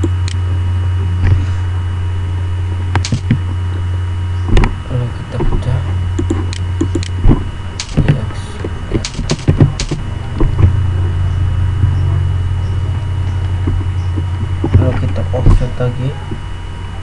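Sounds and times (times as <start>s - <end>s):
low electrical hum: 0.0s - 17.0s
keyboard keystrokes: 3.0s - 3.4s, 6.2s - 7.2s, 7.8s - 8.2s, 9.0s - 10.5s
mouse clicks: 6.2s - 7.2s.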